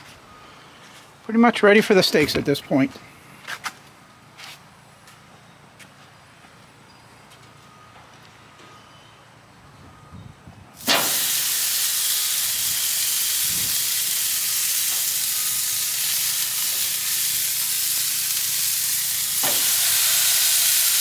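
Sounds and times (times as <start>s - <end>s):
steak sizzling on grill: 10.8s - 21.0s.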